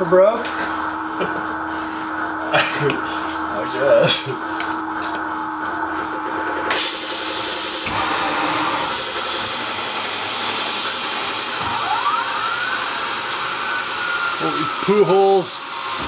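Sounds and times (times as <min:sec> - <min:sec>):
rising cutter whine: 0:00.9 - 0:16.0
spindle and axis motors: 0:01.0 - 0:16.0
coolant spray hissing: 0:06.7 - 0:16.0.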